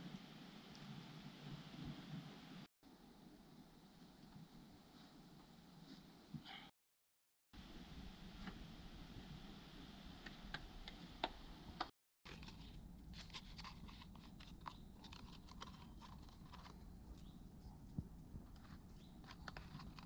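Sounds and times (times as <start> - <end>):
wood clicking and scraping: 13.2 - 17.3, 18.5 - 20.0.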